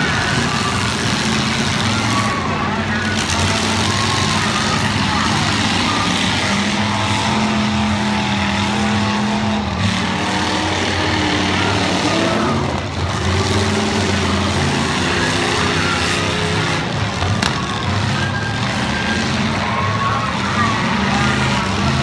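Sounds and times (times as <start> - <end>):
car engines revving: 0.0 - 22.0.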